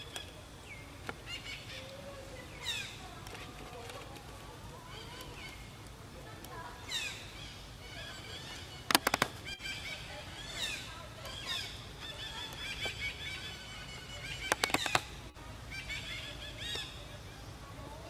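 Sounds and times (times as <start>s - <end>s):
monkeys giving high calls: 6.8s - 17.4s
sharp clicks: 8.8s - 9.6s, 14.4s - 15.2s.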